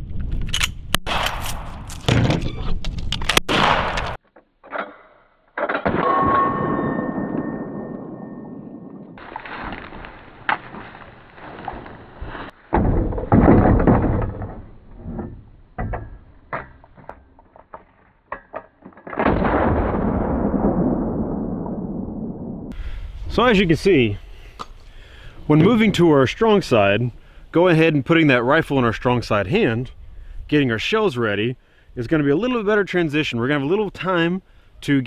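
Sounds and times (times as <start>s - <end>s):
gunshots: 1.0s - 1.8s, 3.4s - 4.2s
slow-motion gunshot booms: 3.5s - 4.2s, 19.2s - 22.7s.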